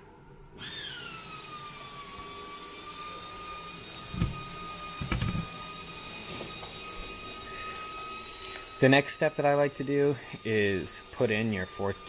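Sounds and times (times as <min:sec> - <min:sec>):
motor whirring whine: 0:00.6 - 0:12.0
dull knocks: 0:04.2 - 0:05.5.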